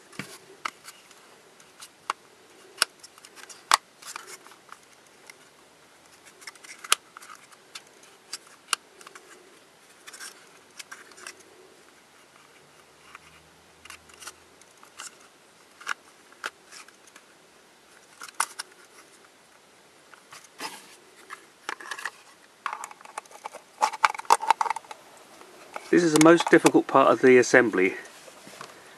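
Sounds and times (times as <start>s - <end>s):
plastic puzzle pieces clicking: 21.7s - 25.0s, 25.7s - 26.8s.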